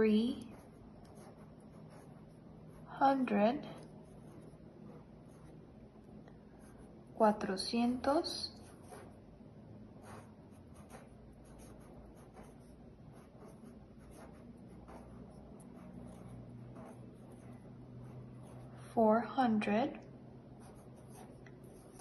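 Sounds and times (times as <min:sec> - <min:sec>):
marker writing on paper: 0:00.1 - 0:05.6, 0:08.1 - 0:09.2, 0:10.0 - 0:19.0, 0:20.6 - 0:22.0.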